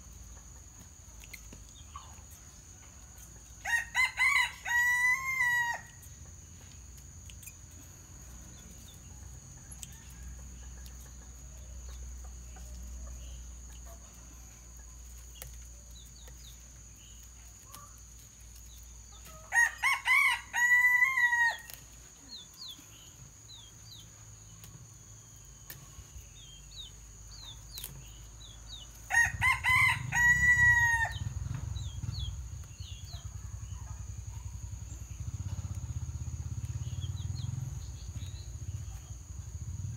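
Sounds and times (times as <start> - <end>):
rooster crowing: 3.6 - 6.0, 19.5 - 21.7, 29.1 - 31.5.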